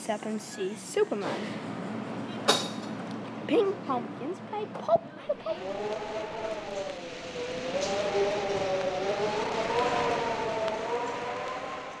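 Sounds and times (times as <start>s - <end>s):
eerie wavering held tones: 5.3s - 12.0s.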